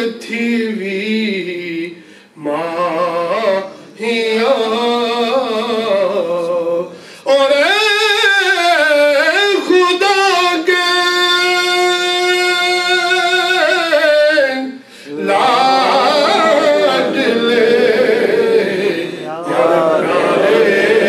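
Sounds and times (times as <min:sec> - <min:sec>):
man singing into microphone: 0:00.0 - 0:17.6
short breaths: 0:02.0 - 0:02.4, 0:06.9 - 0:07.3, 0:14.8 - 0:15.2.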